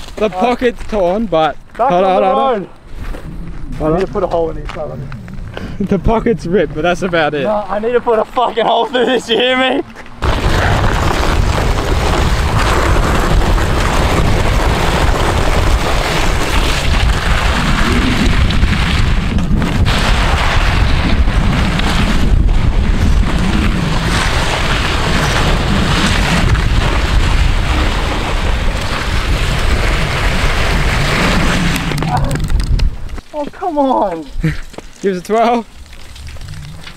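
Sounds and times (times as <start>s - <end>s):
body sliding along asphalt: 0.0s - 36.9s
vehicle road noise: 2.7s - 10.4s
wind rushing on microphone: 10.2s - 33.2s.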